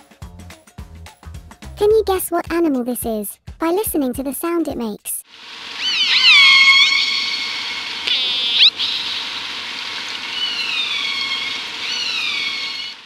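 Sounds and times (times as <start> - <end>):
steady hiss: 5.3 - 13.0
orca calls: 5.8 - 13.0.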